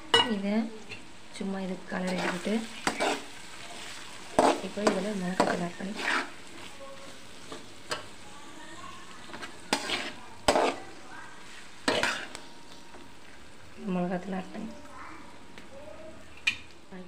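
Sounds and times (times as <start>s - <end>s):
soft steady sizzle: 0.0s - 17.0s
metal spatula scraping a pan: 2.0s - 8.1s, 9.2s - 12.4s.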